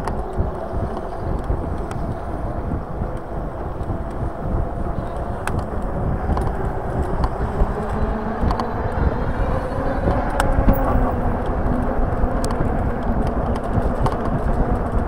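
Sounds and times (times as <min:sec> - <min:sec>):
wind rushing over microphone: 0:00.0 - 0:15.0
small clicks and rattles: 0:10.0 - 0:15.0.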